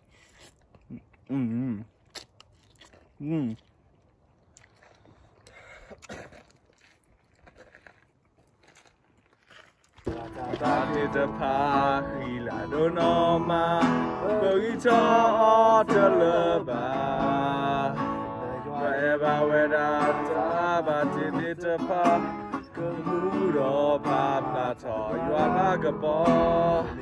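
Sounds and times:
acoustic guitar strumming: 10.1 - 27.0
two men singing: 10.1 - 27.0.

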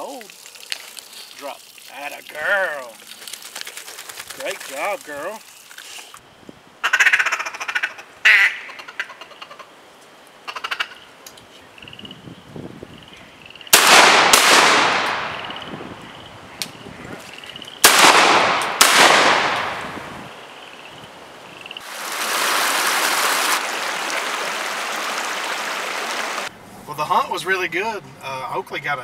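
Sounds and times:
duck call quacking: 6.8 - 9.7, 10.5 - 11.0
shotgun shots: 13.7 - 15.7, 17.8 - 20.0.

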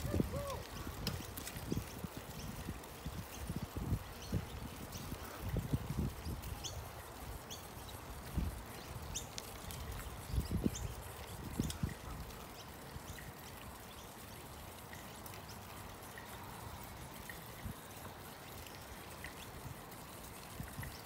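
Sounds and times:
bicycle tyre hiss and wind: 0.0 - 21.0.

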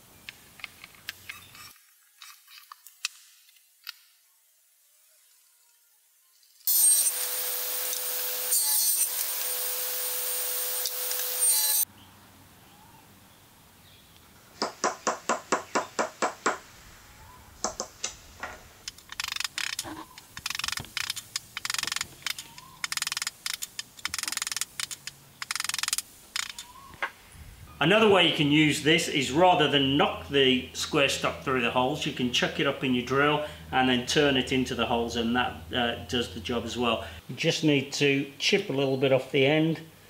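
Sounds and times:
table saw ripping wood: 6.6 - 11.8
wooden mallet striking wood: 14.6 - 16.6.

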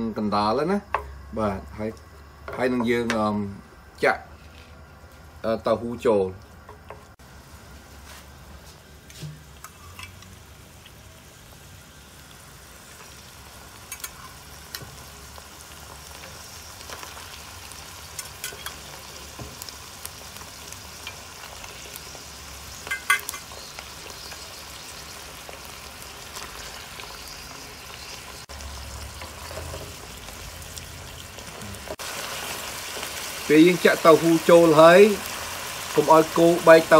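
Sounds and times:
meat sizzling in a pan: 7.1 - 36.9.

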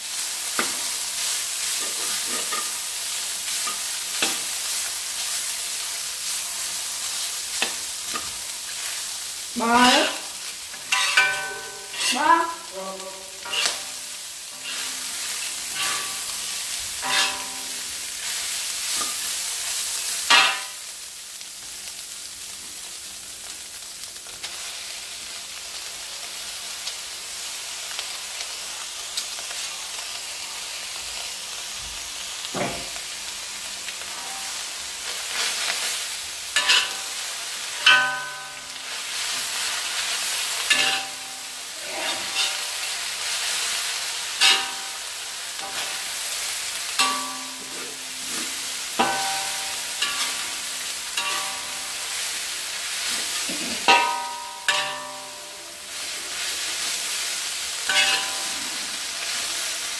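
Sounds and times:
meat sizzling in a wok: 0.0 - 59.9
metal ladle scraping wok: 9.7 - 12.4, 13.4 - 19.3, 36.6 - 37.2, 40.6 - 43.0, 44.4 - 45.0, 45.6 - 46.2, 47.0 - 56.4, 57.9 - 59.7.

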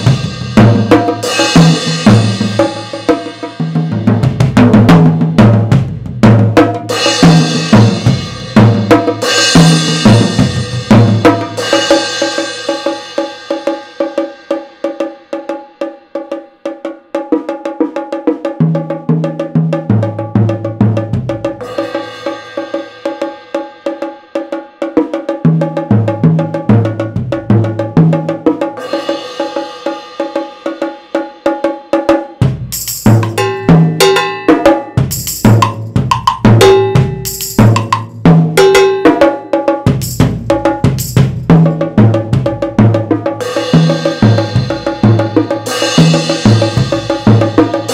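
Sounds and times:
cymbal crashes: 0.0 - 4.0
drums and bongos played fast: 0.0 - 47.9.

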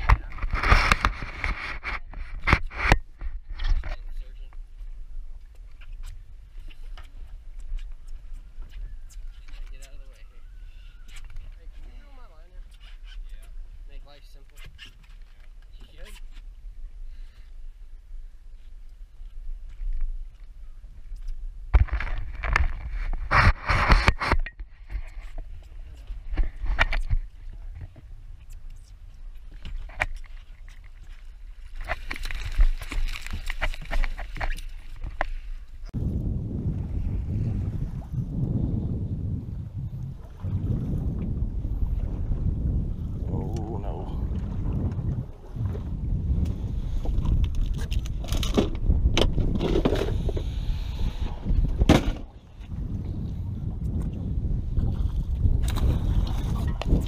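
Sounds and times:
knocks and clatter on boat: 0.0 - 4.5, 21.7 - 28.1, 44.3 - 50.4, 51.4 - 52.4
wind rumble on microphone: 0.0 - 14.9, 15.5 - 57.0
water slapping boat hull: 39.9 - 50.5, 51.2 - 57.0.

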